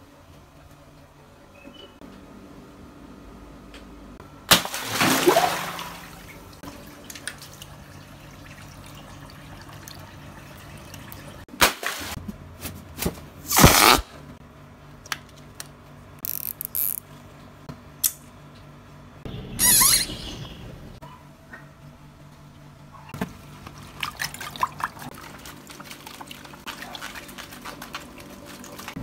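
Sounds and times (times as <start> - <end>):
water swishing and sloshing: 4.6 - 12.2, 23.4 - 29.0.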